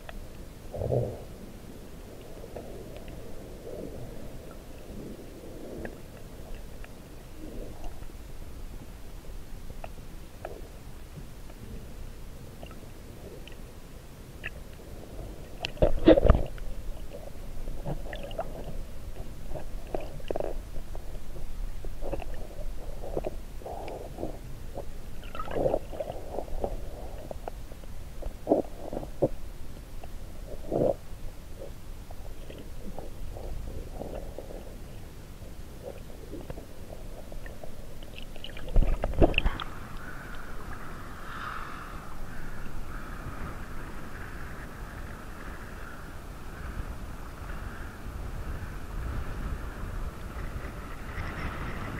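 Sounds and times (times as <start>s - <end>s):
steady high hiss: 0.0s - 51.9s
underwater gurgles and knocks: 2.1s - 11.6s, 14.4s - 31.0s, 31.6s - 41.0s, 50.2s - 51.9s.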